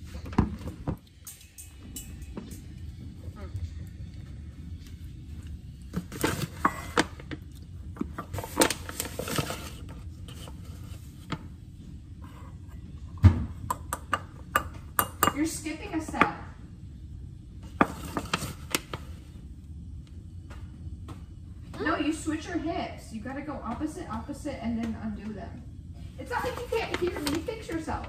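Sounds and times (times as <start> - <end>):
utensils clinking against metal bowl: 1.2 - 2.9, 13.7 - 15.5.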